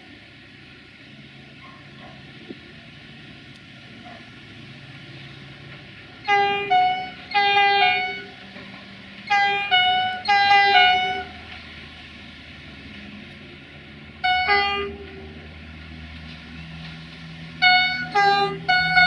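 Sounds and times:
train horn two-note blasts: 0:06.2 - 0:08.4, 0:09.3 - 0:11.5, 0:14.2 - 0:15.4, 0:17.6 - 0:19.0.

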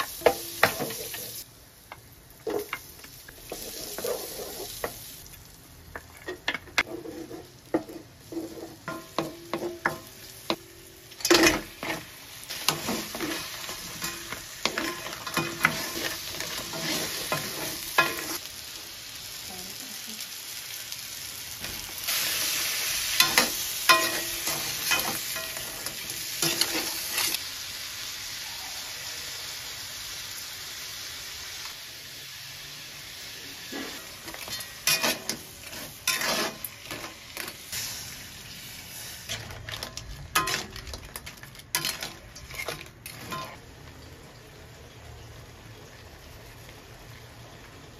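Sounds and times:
food sizzling in a wok: 0:00.0 - 0:47.9
wooden spoon scraping a pan: 0:03.4 - 0:05.0, 0:06.0 - 0:10.0, 0:11.3 - 0:18.4, 0:33.7 - 0:37.5.

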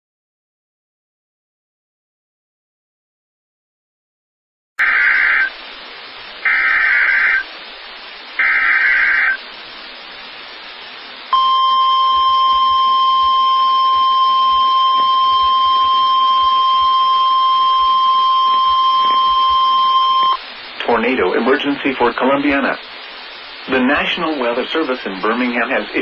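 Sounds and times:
buzzy digital data bursts: 0:04.8 - 0:05.6, 0:06.4 - 0:07.5, 0:08.1 - 0:09.4
broadcast hiss: 0:04.8 - 0:26.0.

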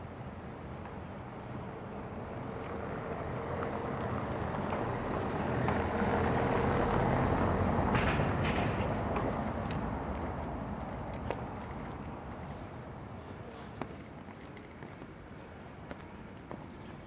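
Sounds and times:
vehicle engine approaching: 0:02.8 - 0:12.0.

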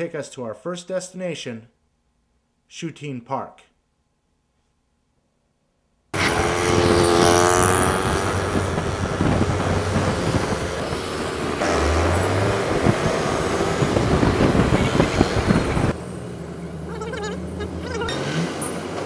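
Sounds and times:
wind buffeting microphone: 0:06.2 - 0:16.0
motorbike and scooter engines: 0:06.2 - 0:19.0.

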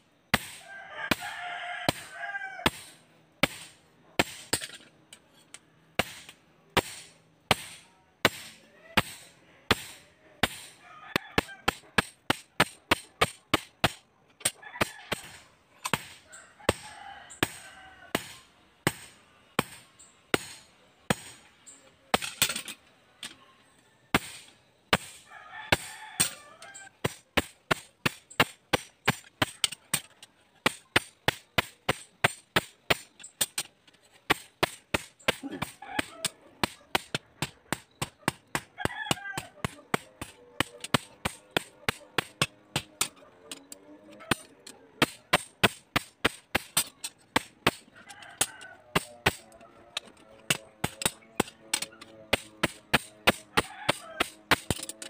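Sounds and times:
hammer striking metal on anvil: 0:06.0 - 0:10.8, 0:17.4 - 0:21.5, 0:50.4 - 0:55.0.

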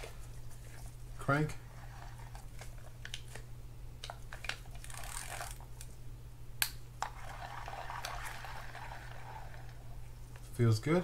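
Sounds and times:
fishing reel whirring: 0:04.8 - 0:05.6, 0:07.1 - 0:10.0
sharp clicks from reel: 0:04.8 - 0:05.6.

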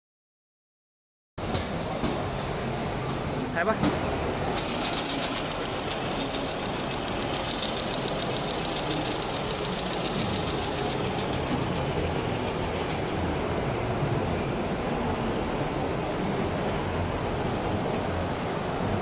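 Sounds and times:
sewing machine stitching: 0:04.4 - 0:13.2.

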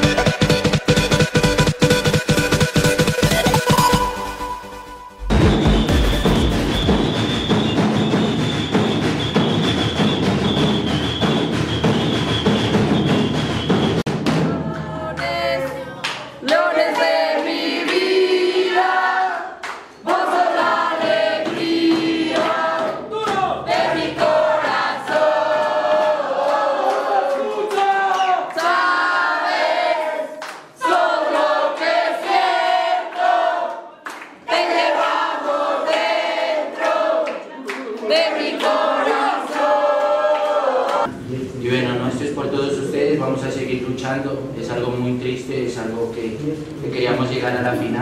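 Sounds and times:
group singing a chant: 0:14.3 - 0:41.2.

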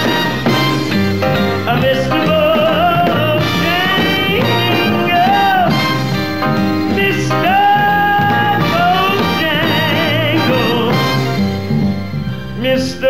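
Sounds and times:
band accompaniment: 0:00.0 - 0:13.0
man singing a ballad: 0:01.4 - 0:06.1, 0:06.8 - 0:11.4, 0:12.6 - 0:13.0.

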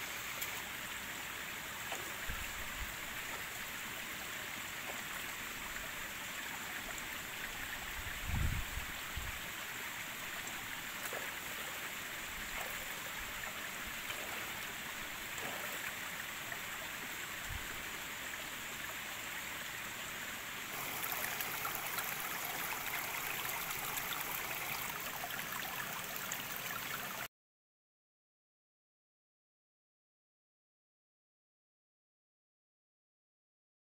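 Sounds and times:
stream water flowing: 0:00.0 - 0:27.3.

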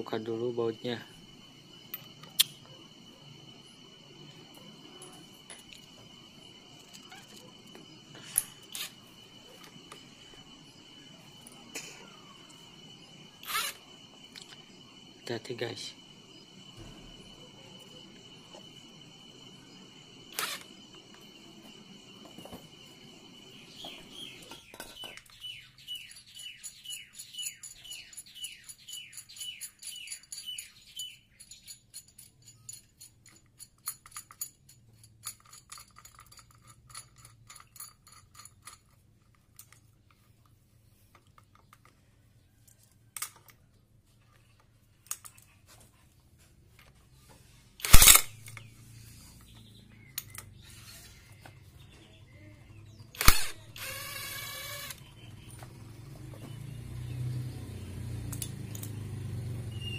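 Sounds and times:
electric impact wrench hammering: 0:13.2 - 0:15.9, 0:19.5 - 0:25.3, 0:47.8 - 0:48.7, 0:53.1 - 0:55.8
sharp clicks: 0:47.8 - 0:48.6, 0:53.2 - 0:55.0
high chirp: 0:59.7 - 0:59.9.

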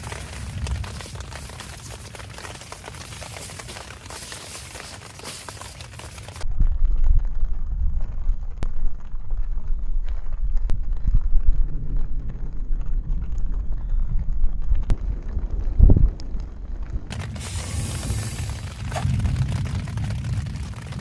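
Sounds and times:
raindrop ticks: 0:00.0 - 0:06.4, 0:14.2 - 0:21.0
thunder rumbling: 0:00.0 - 0:21.0.

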